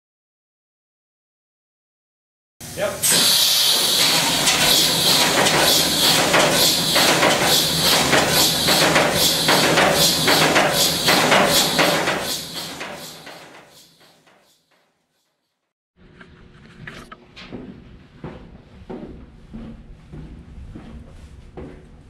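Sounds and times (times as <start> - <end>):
large diesel engine running: 3.2 - 13.5.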